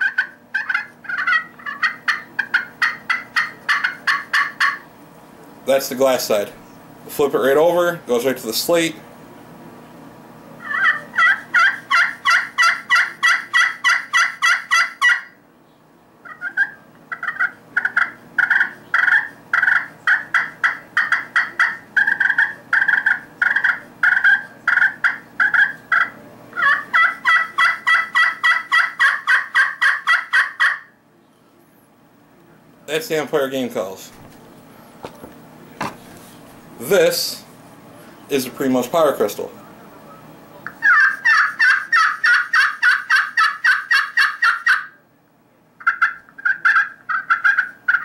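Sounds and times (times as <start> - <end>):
friction turkey call: 0.0 - 4.8, 10.6 - 15.4, 16.2 - 31.0, 40.7 - 45.0, 45.8 - 48.0.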